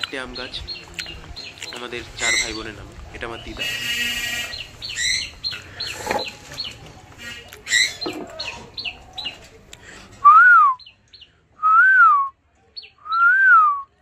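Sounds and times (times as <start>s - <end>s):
parakeet chirping: 2.2s - 9.4s.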